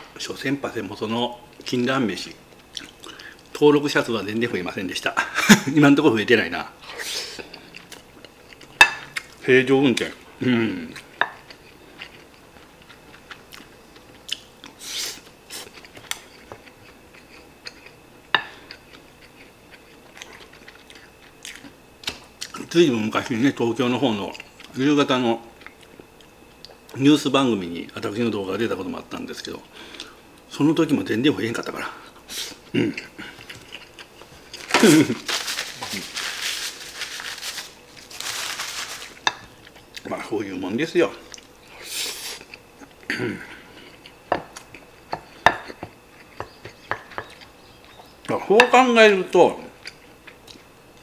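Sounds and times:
rustling and crinkling: 0:33.5 - 0:39.8.

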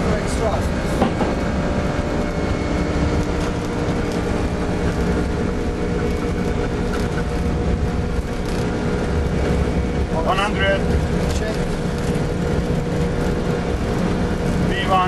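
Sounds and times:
jet engines roaring: 0:00.0 - 0:15.0.

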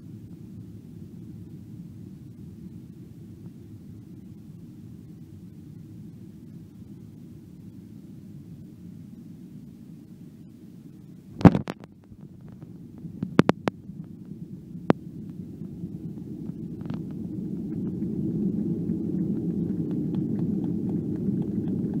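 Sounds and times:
jet rolling out low rumble: 0:00.0 - 0:22.0.

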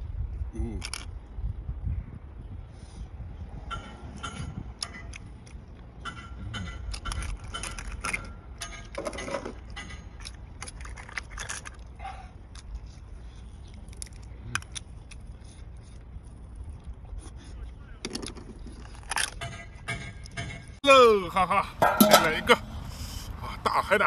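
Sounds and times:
shellfish shells cracking: 0:10.2 - 0:12.8.

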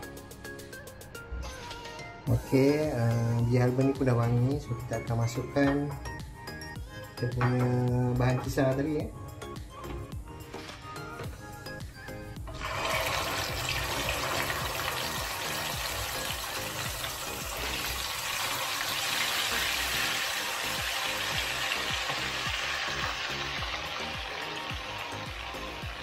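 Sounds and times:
paste sizzling in hot oil: 0:12.5 - 0:26.0.

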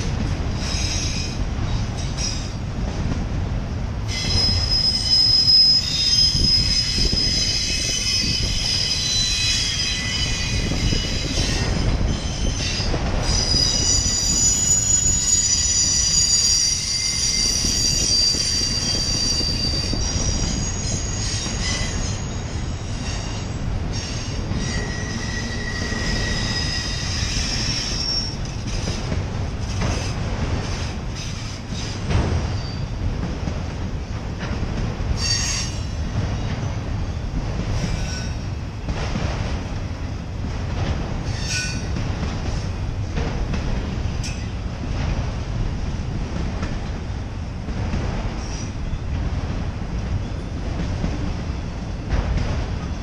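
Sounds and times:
train wheels rumbling on rails: 0:00.0 - 0:53.0
high wheel squeal: 0:04.1 - 0:28.9, 0:35.2 - 0:36.0, 0:41.3 - 0:41.9.

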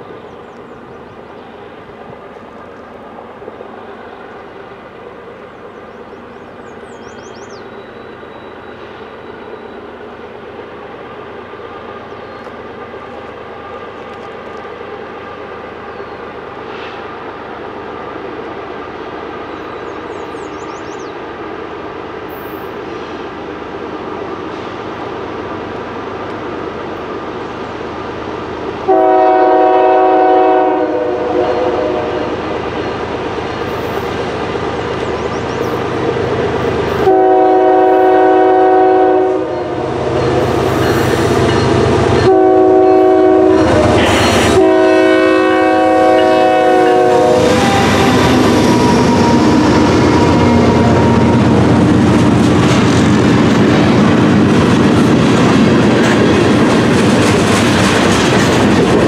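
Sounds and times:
locomotive air horn blasts: 0:28.9 - 0:32.4, 0:36.9 - 0:41.3, 0:42.1 - 0:51.6
freight cars clickety-clack: 0:47.4 - 0:59.0.

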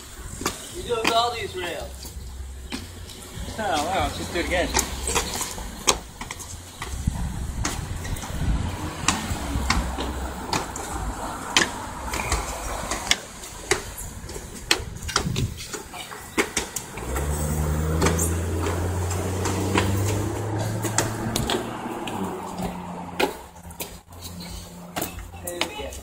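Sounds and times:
shoes landing on concrete steps: 0:00.3 - 0:04.0, 0:04.7 - 0:24.1.

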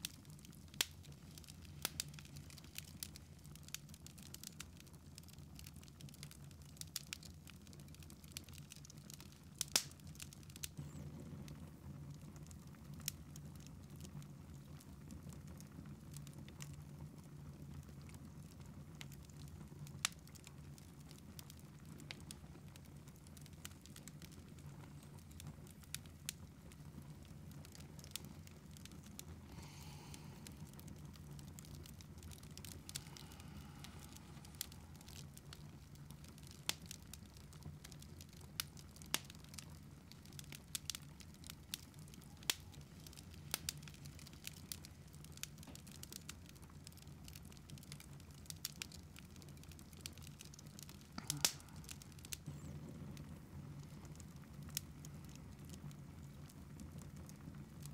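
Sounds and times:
wood fire crackling: 0:00.0 - 0:57.9
low steady hum: 0:22.3 - 0:45.1, 0:49.6 - 0:55.3.

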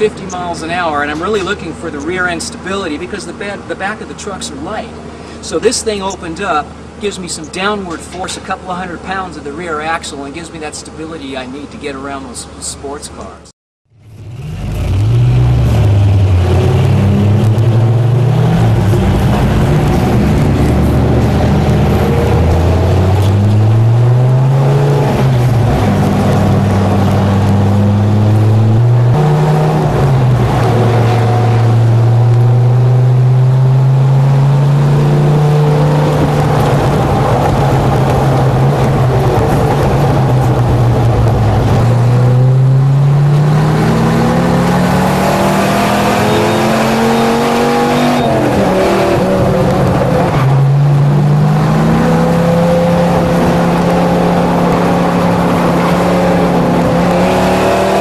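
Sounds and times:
pickup truck engine revving: 0:13.9 - 0:58.0.

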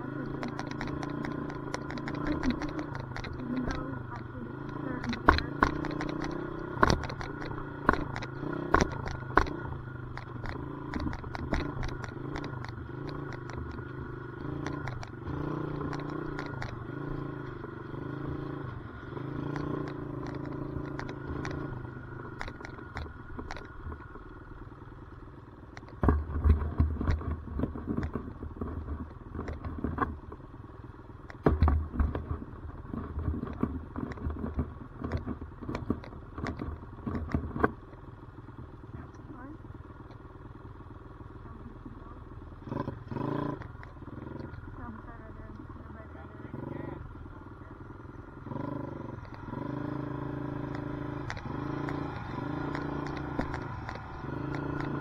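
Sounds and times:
dirt bike engine revving: 0:00.0 - 0:23.1, 0:42.6 - 0:45.2, 0:45.8 - 0:55.0.

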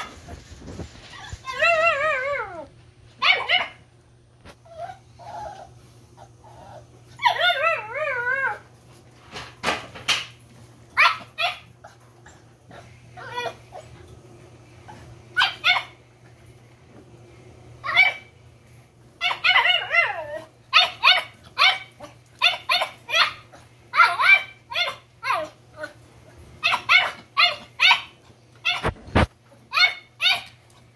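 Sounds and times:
puppies whining: 0:00.0 - 0:03.8, 0:04.5 - 0:08.7, 0:11.0 - 0:14.1, 0:19.2 - 0:26.0, 0:26.6 - 0:30.6
puppies yipping and barking: 0:04.7 - 0:08.6, 0:15.4 - 0:16.0, 0:19.2 - 0:25.6, 0:26.6 - 0:30.6.

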